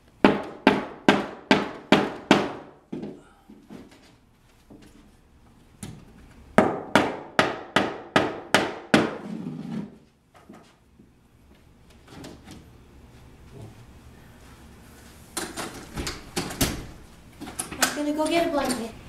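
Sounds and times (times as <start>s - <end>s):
hammer striking a board: 0.2s - 2.7s, 6.6s - 9.3s.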